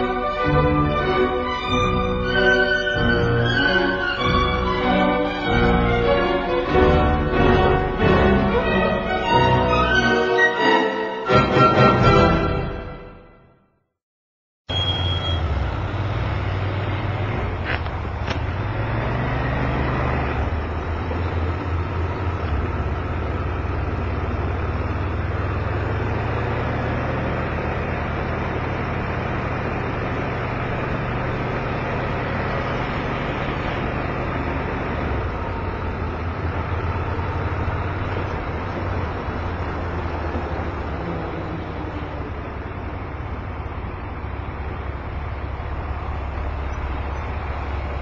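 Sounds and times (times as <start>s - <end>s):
wind and road rush: 14.8s - 48.0s
motorbike engine running: 20.4s - 48.0s.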